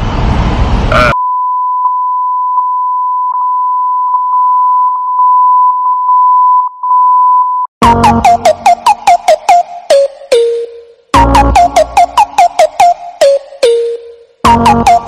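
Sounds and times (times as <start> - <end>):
high censor bleep: 0.9 - 7.7
electronic music with plucked notes: 7.8 - 15.0.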